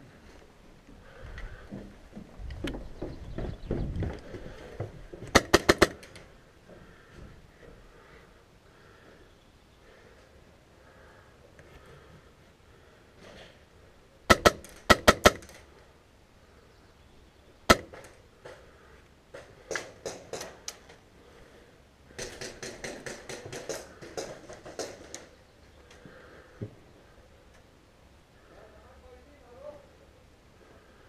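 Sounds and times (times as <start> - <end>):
airsoft guns firing: 5.2 - 6.3, 14.3 - 15.7, 17.7 - 18.2, 22.2 - 25.2.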